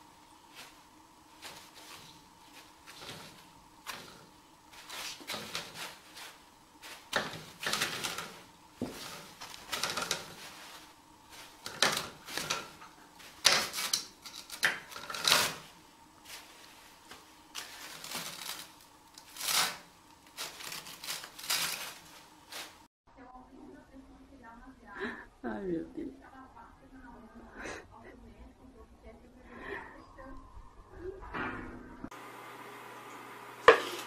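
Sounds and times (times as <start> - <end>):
toilet paper rustling: 0.0 - 22.9.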